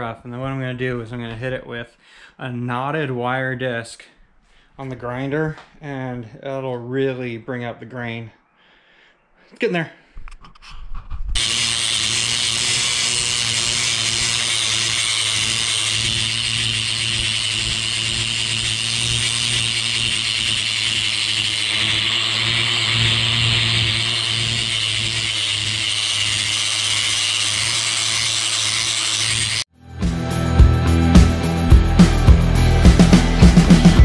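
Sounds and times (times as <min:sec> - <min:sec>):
wire brush grinder scouring wood: 0:11.4 - 0:29.7.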